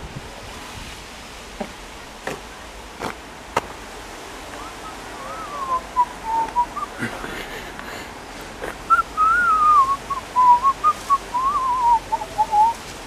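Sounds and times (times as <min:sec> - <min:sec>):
outdoor background hiss: 0:00.0 - 0:13.0
person whistling: 0:05.2 - 0:06.9, 0:08.9 - 0:12.8.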